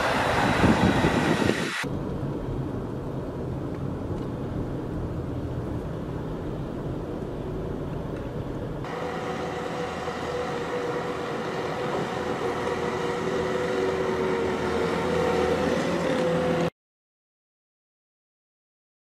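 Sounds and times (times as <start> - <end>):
loader engine under load: 0.0 - 1.9, 8.8 - 16.7.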